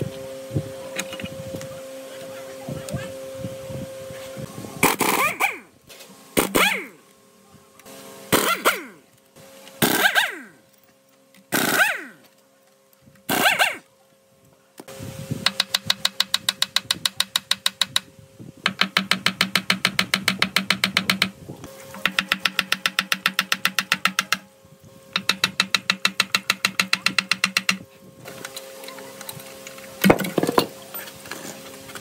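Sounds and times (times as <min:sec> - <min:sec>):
rapid mechanical knocking: 0:25.2 - 0:27.8.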